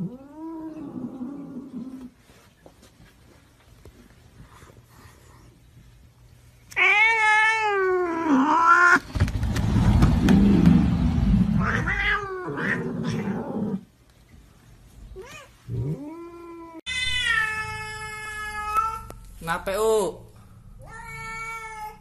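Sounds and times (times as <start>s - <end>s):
cats meowing and yowling: 6.8s - 9.0s, 11.6s - 13.7s, 15.2s - 19.2s, 20.8s - 22.0s.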